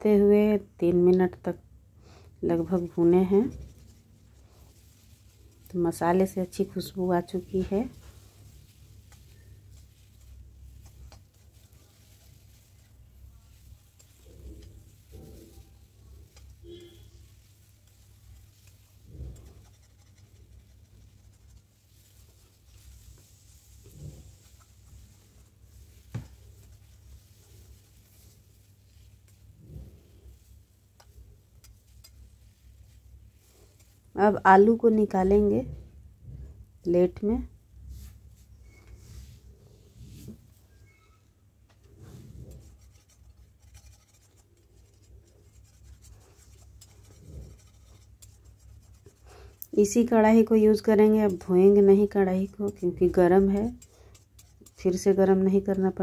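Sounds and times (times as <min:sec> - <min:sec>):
low steady hum: 0:00.0 - 0:56.0
metal spatula scraping a pan: 0:11.8 - 0:18.0.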